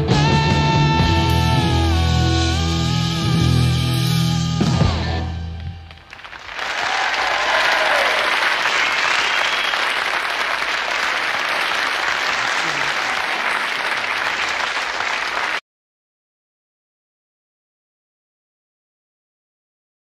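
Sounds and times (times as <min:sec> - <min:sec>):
audience applauding: 0:05.9 - 0:15.6
faint whistles and shouts: 0:09.2 - 0:10.0.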